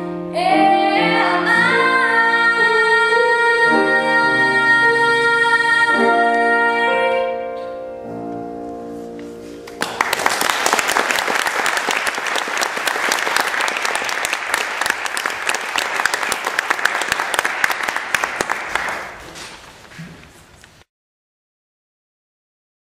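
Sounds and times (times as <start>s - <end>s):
audience applauding: 9.7s - 19.6s.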